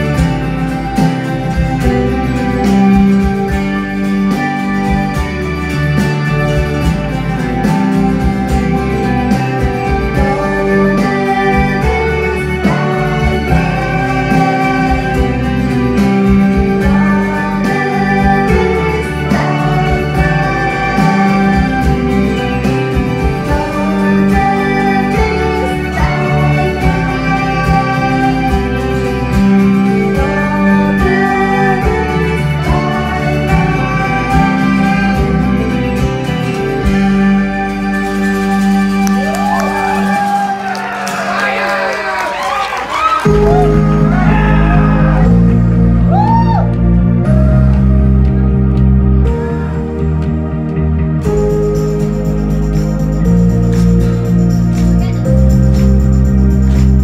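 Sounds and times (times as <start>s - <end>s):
woman singing into a microphone: 9.9s - 35.8s.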